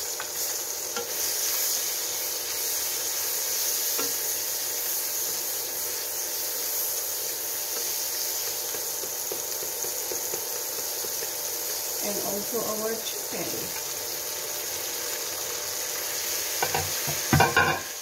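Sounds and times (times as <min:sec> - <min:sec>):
onions sizzling in a pan: 0:00.0 - 0:18.0
spatula tapping a pan: 0:03.9 - 0:04.2, 0:07.7 - 0:11.8, 0:16.6 - 0:18.0.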